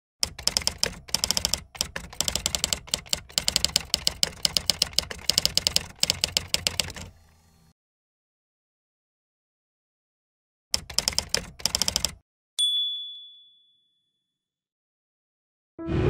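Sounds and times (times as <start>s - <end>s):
typewriter key clicks: 0.2s - 7.1s, 10.8s - 12.2s.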